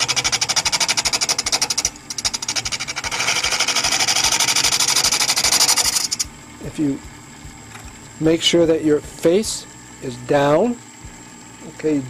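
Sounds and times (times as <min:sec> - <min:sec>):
lathe tool rattling on wood: 0:00.0 - 0:06.2.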